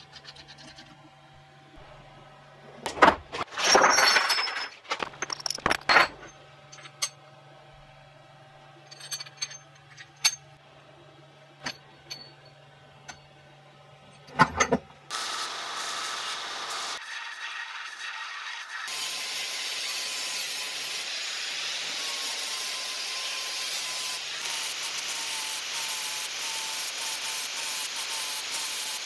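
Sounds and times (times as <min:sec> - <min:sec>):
metal washers clattering on wood: 0:03.6 - 0:07.1
belt sander grinding: 0:18.9 - 0:29.0.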